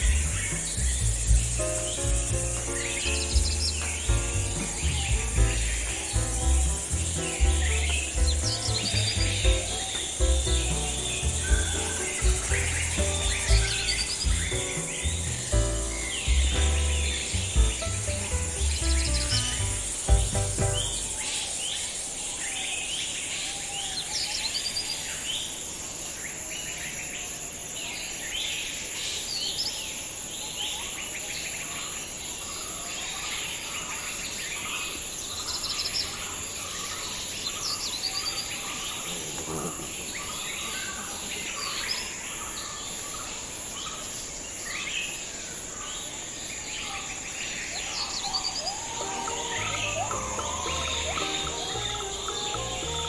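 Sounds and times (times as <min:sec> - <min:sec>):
birds chirping and calling: 0:00.0 - 0:21.9, 0:46.8 - 0:53.0
insect drone: 0:00.0 - 0:53.0.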